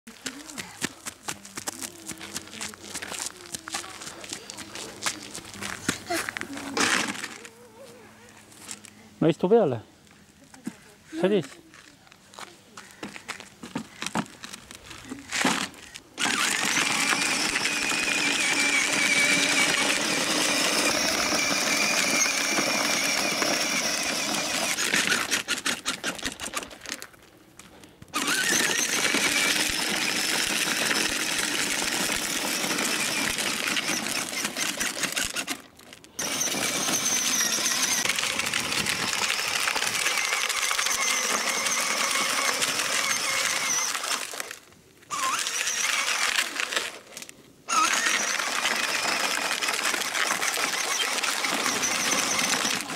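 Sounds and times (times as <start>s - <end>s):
wheels rolling on gravel: 0.1s - 9.0s, 11.2s - 52.9s
electric motor whirring: 15.5s - 26.6s, 28.2s - 52.9s.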